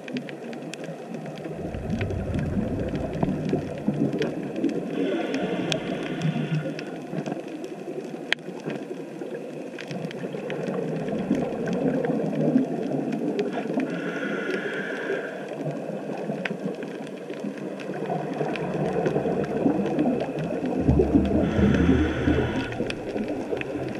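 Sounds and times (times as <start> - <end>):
underwater burble and bubbles: 0.0 - 23.9
diver's regulator hissing: 21.4 - 23.4.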